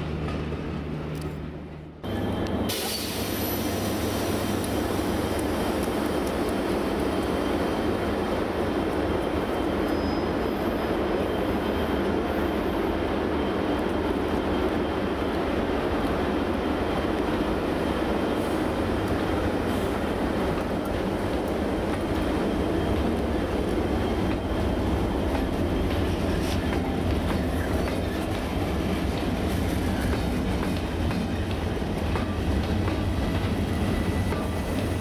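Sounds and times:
train wheels rumbling: 13.3s - 35.0s.

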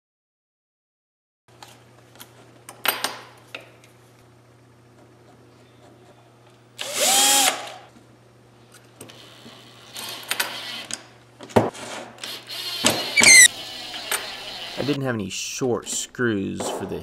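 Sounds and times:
cordless drill running: 6.8s - 7.8s, 12.3s - 14.9s.

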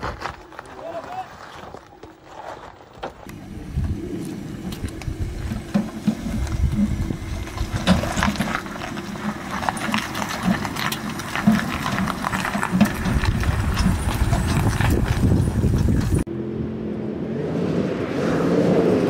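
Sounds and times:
clunks and rattles: 3.0s - 16.3s
low engine hum: 3.2s - 19.0s.

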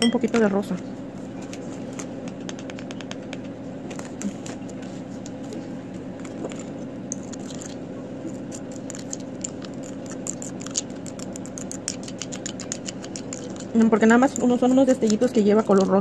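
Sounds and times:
steady low hum: 0.0s - 16.0s
glitter pattering in glass cup: 6.2s - 16.0s.

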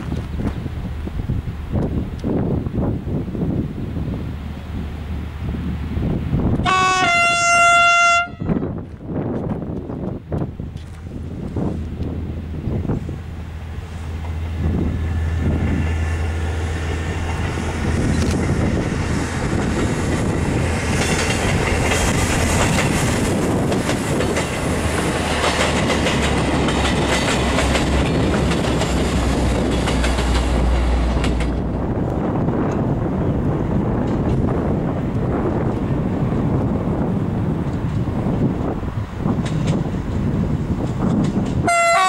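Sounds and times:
diesel railcar engine drone: 0.0s - 42.0s
train wheels clicking over rail joints: 8.8s - 42.0s.

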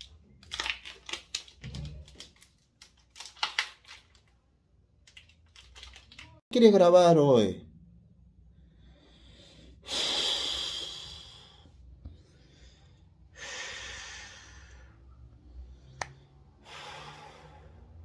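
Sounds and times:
person breathing out heavily: 8.6s - 15.0s, 16.6s - 18.0s.

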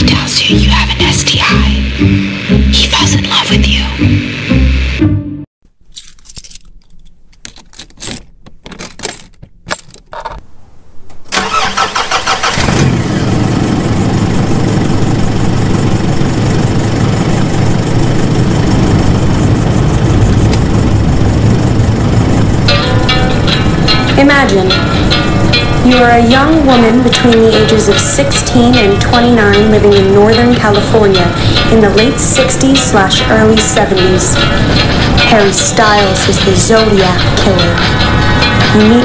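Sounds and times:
engine sputtering and starting: 11.3s - 39.0s.

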